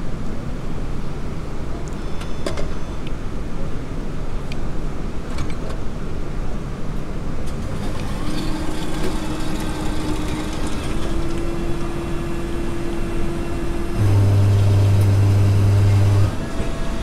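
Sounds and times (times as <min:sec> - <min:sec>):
coffee vending machine hum: 0:07.4 - 0:17.0
deeper louder machine hum: 0:07.6 - 0:17.0.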